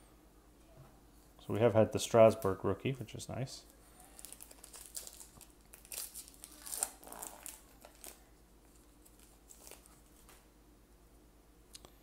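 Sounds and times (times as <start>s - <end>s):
plastic wrapper crinkling and tearing: 4.0s - 10.4s.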